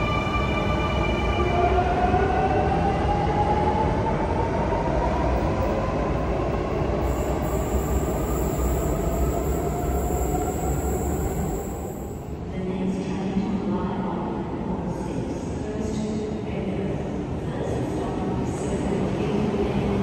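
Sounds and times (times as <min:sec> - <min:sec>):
electric train motor whine: 0:05.4 - 0:12.4.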